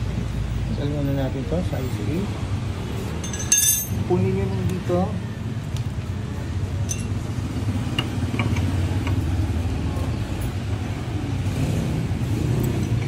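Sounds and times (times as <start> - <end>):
engine running with low hum: 5.6 - 13.0.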